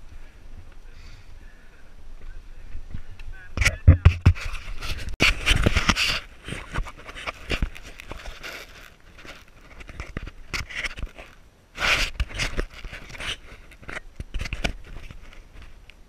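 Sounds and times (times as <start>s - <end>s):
rider breathing hard: 0.0s - 1.8s
bike knocks and rattles: 3.6s - 4.5s.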